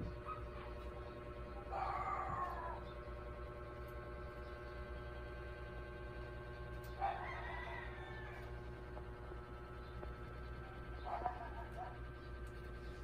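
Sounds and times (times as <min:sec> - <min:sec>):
low background hum: 0:00.0 - 0:13.0
rooster crowing: 0:01.6 - 0:02.8, 0:07.0 - 0:09.0.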